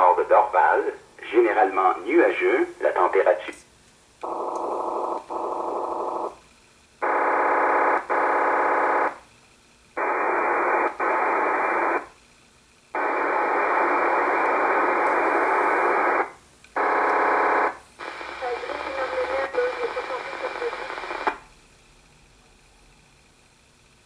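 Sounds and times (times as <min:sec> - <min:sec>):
buzzy digital radio bursts: 0:18.0 - 0:21.4.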